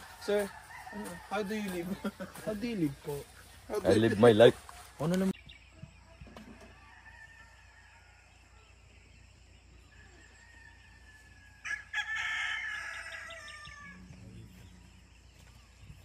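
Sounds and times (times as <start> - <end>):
rooster crowing: 0.0 - 2.1, 6.6 - 8.4, 9.9 - 14.2.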